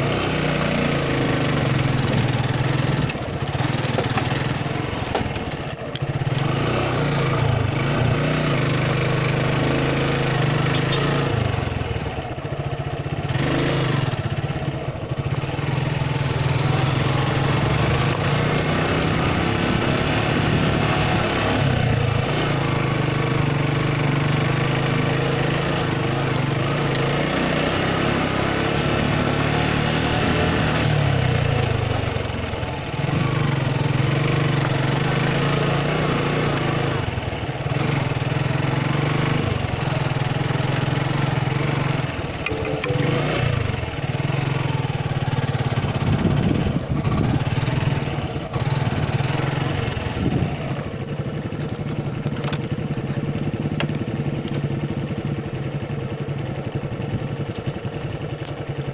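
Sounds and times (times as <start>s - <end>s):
motorcycle engine running: 0.0s - 58.9s.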